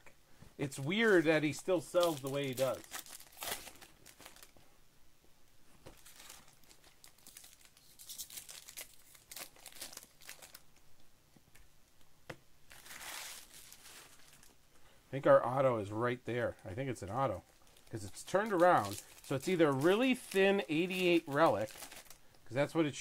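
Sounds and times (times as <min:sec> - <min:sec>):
wrapper tearing and crinkling: 0:01.9 - 0:04.5, 0:05.9 - 0:10.7, 0:12.7 - 0:14.5, 0:17.5 - 0:22.3.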